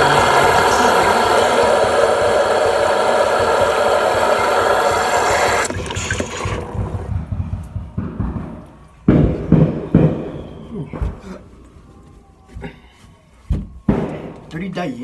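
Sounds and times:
running water rushing: 0:00.0 - 0:07.0.

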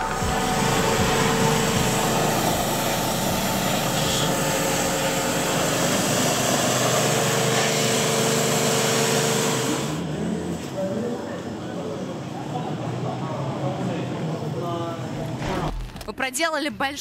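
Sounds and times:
pressure washer spraying water: 0:00.0 - 0:10.0
washer motor tone: 0:00.0 - 0:11.4.

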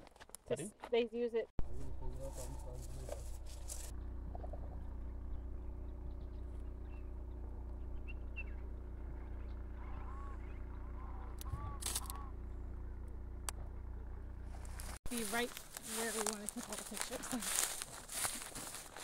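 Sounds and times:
birds chirping: 0:01.6 - 0:19.0
steady low hum: 0:01.6 - 0:19.0
arched lower bird calls: 0:01.7 - 0:12.8.

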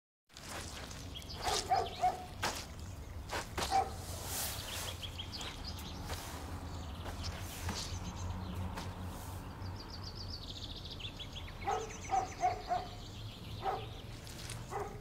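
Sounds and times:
boots squelching in wet concrete: 0:00.3 - 0:09.4, 0:14.1 - 0:15.0
birds chirping: 0:00.3 - 0:15.0.

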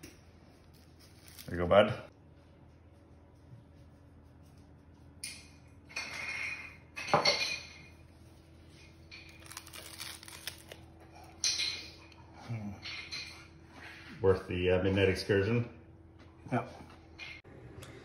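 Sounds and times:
crisp seaweed crackling: 0:09.4 - 0:10.8.

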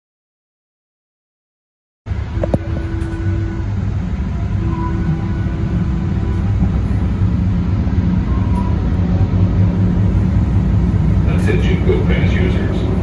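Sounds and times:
faint whining tones: 0:02.1 - 0:11.2
light rail train rumbling: 0:02.1 - 0:13.0.

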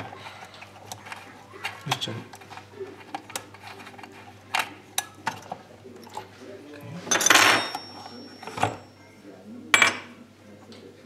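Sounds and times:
metal tools clinking on metal: 0:07.1 - 0:09.0.

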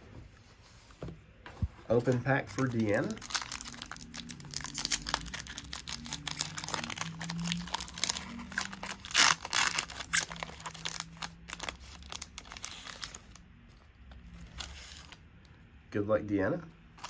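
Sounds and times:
wrapper crinkling and tearing: 0:02.0 - 0:13.4, 0:14.2 - 0:15.2.

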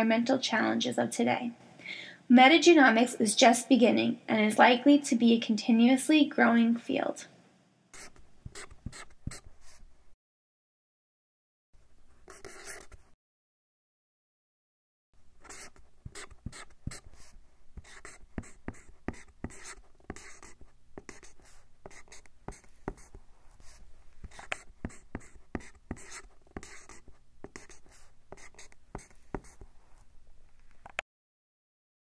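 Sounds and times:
marker drawing on whiteboard: 0:08.0 - 0:10.0, 0:12.2 - 0:13.2, 0:15.4 - 0:30.2.

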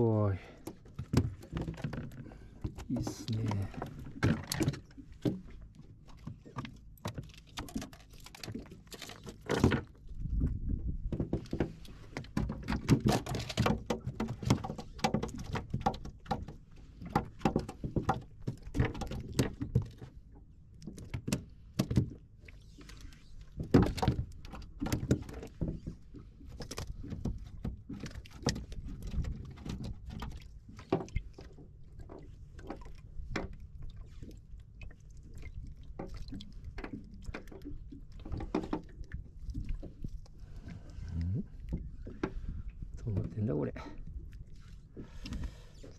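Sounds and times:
clicks and knocks of fish grip: 0:00.6 - 0:20.2, 0:20.8 - 0:22.2, 0:22.8 - 0:34.2.

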